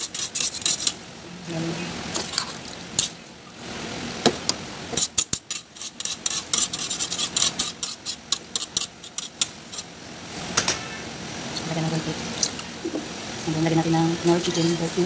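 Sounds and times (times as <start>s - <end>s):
spatula scraping pot: 0.0s - 1.0s, 4.9s - 9.9s.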